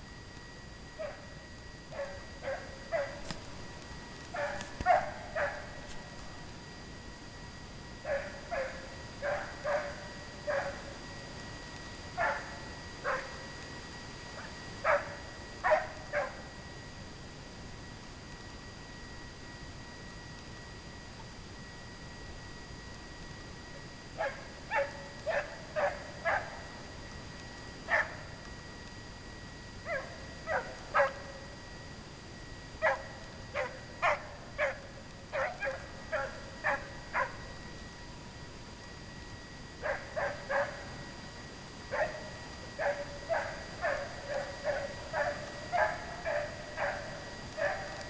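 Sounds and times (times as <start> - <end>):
hounds baying: 1.0 - 3.4, 4.3 - 6.0, 8.0 - 11.0, 12.1 - 13.4, 14.4 - 16.5, 24.2 - 26.7, 27.9 - 28.3, 29.8 - 31.5, 32.8 - 37.5, 39.8 - 41.1, 41.9 - 48.0.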